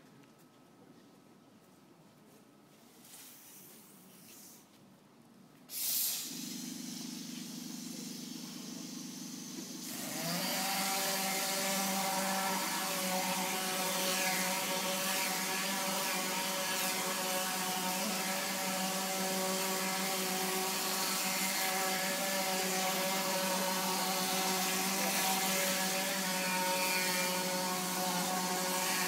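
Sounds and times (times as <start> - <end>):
hiss of air: 3.0 - 4.7, 5.7 - 10.0
second motor spinning up: 6.1 - 29.0.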